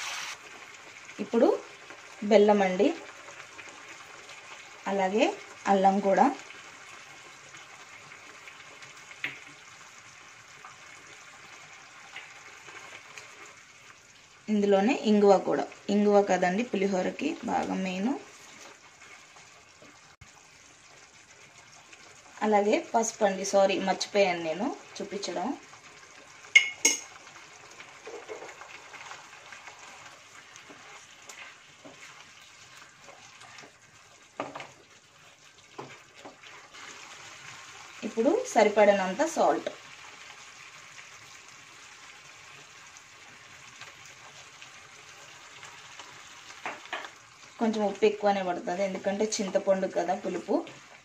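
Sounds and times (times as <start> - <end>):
faint steady sizzle: 0.0 - 51.0
wooden spatula stirring: 28.0 - 37.8.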